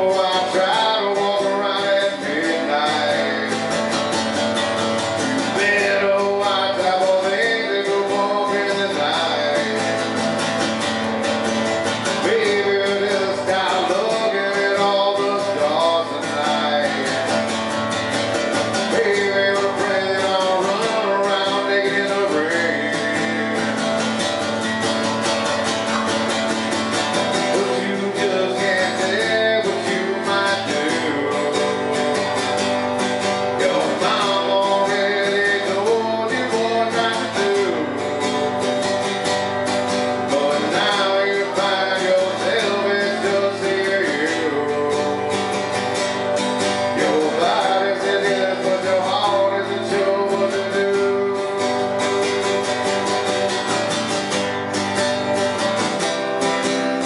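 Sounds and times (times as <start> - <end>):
man singing: 0.0 - 55.9
acoustic guitar strumming: 0.0 - 57.0.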